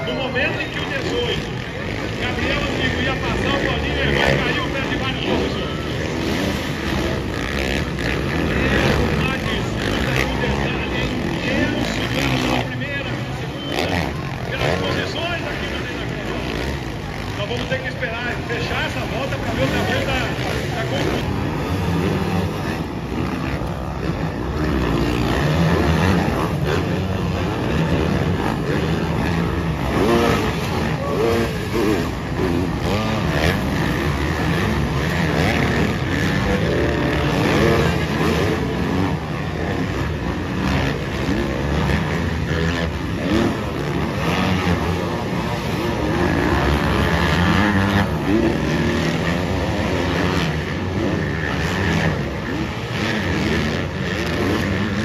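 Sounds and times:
motocross bike engines revving: 0.0 - 55.0.

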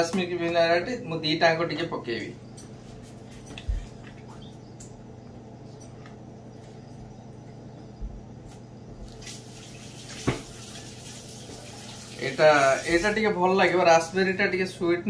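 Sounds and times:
bottle set down on table: 10.2 - 10.5.

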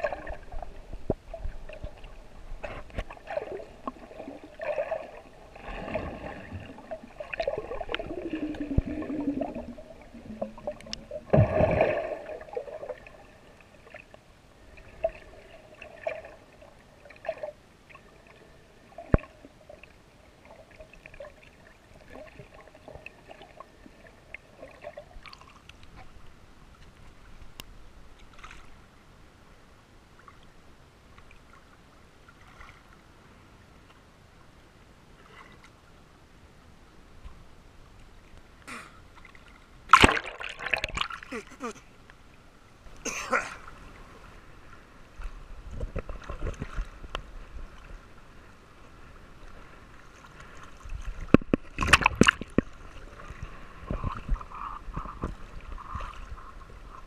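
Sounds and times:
muffled water sloshing: 0.0 - 18.3, 37.1 - 57.0.

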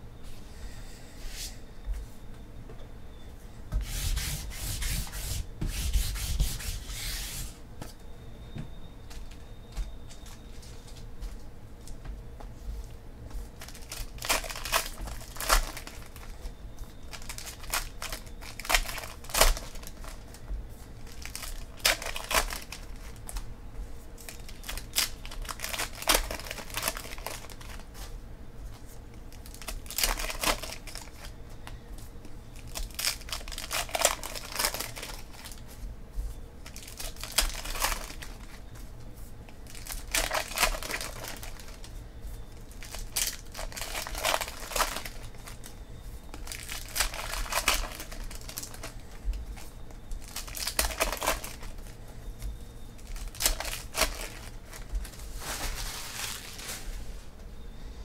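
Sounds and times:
foil wrappers tearing and crinkling: 13.6 - 20.4, 21.0 - 23.5, 24.2 - 28.2, 29.3 - 31.4, 32.5 - 35.8, 36.6 - 38.9, 39.5 - 42.0, 42.6 - 52.0, 53.0 - 57.1.

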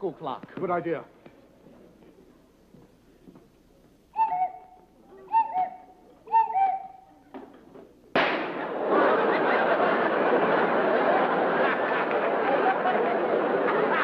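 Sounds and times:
cuckoo clock calling: 4.2 - 7.1
sudden loud bang: 8.2 - 8.8.

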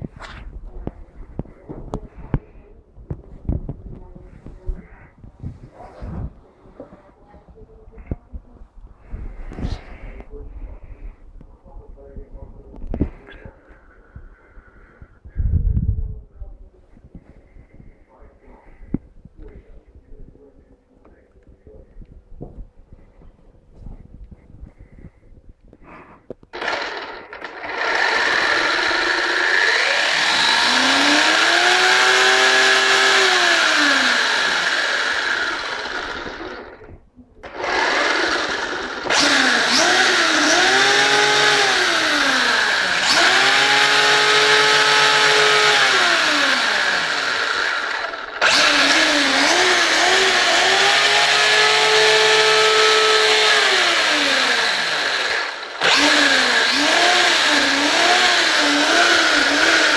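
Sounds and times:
high gear and tyre noise: 26.5 - 36.8
electric motor whine: 26.5 - 59.9.

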